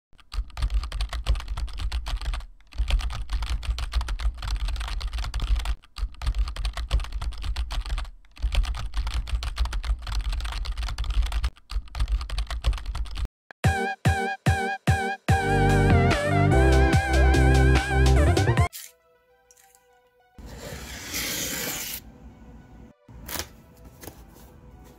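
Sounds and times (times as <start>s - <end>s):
computer keyboard typing: 0.2s - 13.3s
choppy music with held tones: 13.6s - 20.4s.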